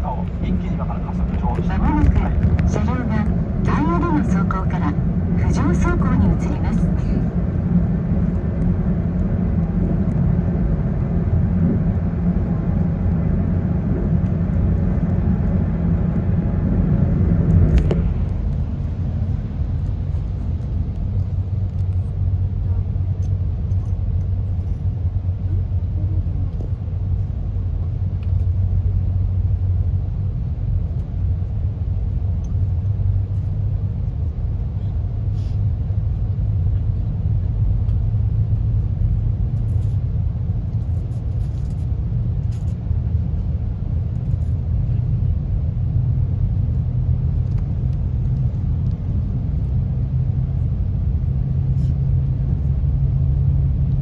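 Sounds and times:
low drone rising in pitch: 0.0s - 35.0s
train cabin rumble: 0.0s - 54.0s.

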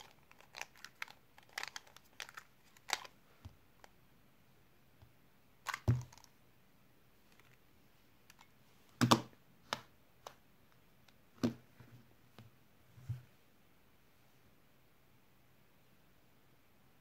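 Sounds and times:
puzzle cube clicks and clatter: 0.0s - 3.2s, 5.7s - 6.3s.

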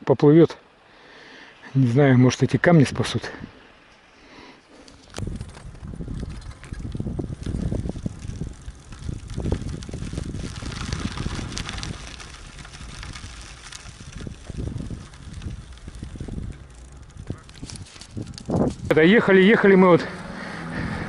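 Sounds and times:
bicycle tyre noise on road: 2.9s - 21.0s
wind buffeting microphone: 5.0s - 21.0s.

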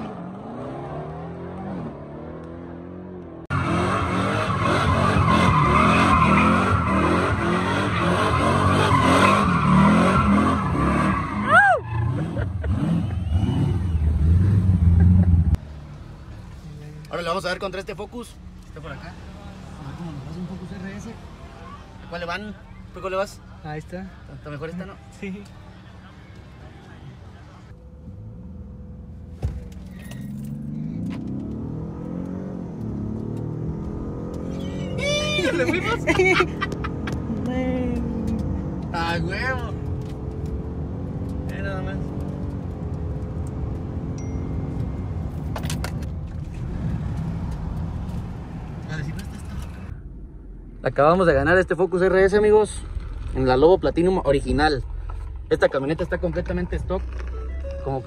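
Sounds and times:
truck engine revving: 0.0s - 15.6s, 30.4s - 58.0s
tyres squealing on concrete: 4.4s - 14.2s.

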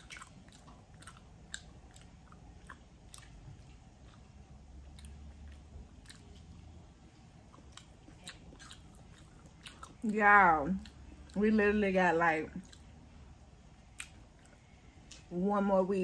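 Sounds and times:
person chewing food: 0.0s - 11.6s, 12.5s - 15.3s
wet mouth clicks: 13.9s - 15.3s.

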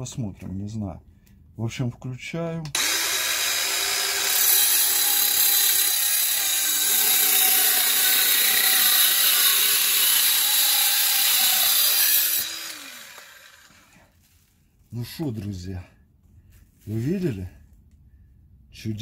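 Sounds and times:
circular saw cutting wood: 2.8s - 14.1s.

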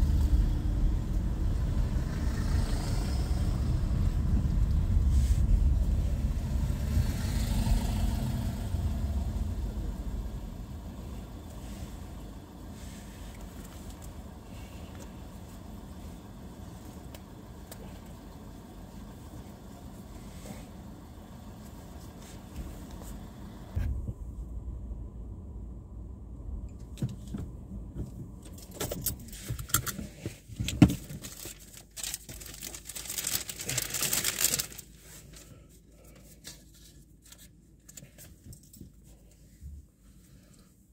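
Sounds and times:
low steady hum: 0.0s - 40.9s
rustling: 28.0s - 40.5s.

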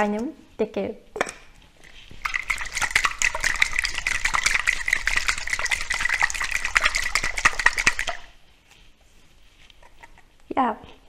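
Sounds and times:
liquid sloshing in shaker: 1.6s - 8.4s, 9.8s - 10.3s.

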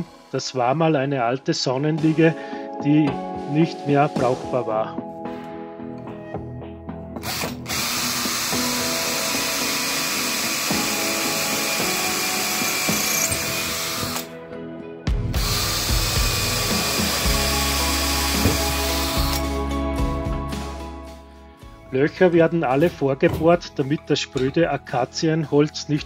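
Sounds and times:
electric drill boring wood: 7.2s - 14.3s, 15.4s - 19.6s.

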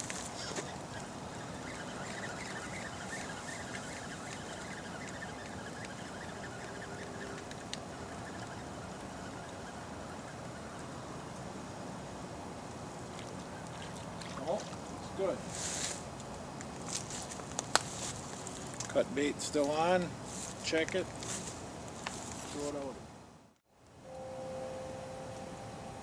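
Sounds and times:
outdoor background noise: 0.0s - 26.0s
faint bird chirps: 0.1s - 10.9s.

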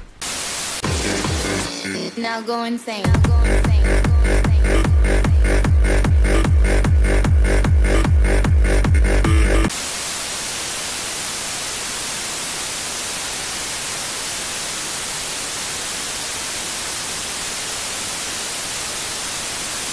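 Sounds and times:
television static hiss: 0.2s - 0.8s, 9.7s - 19.9s.

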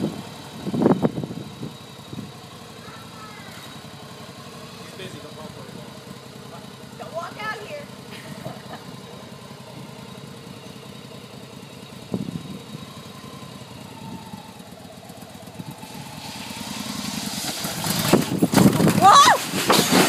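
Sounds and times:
motorcycle engine idling and revving: 0.0s - 20.0s
clunk: 18.1s - 20.0s.

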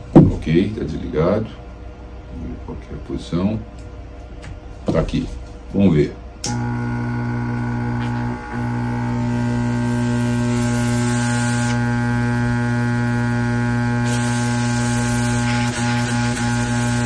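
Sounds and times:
air pump humming: 6.4s - 17.0s
air hissing: 9.8s - 11.9s, 14.0s - 17.0s.

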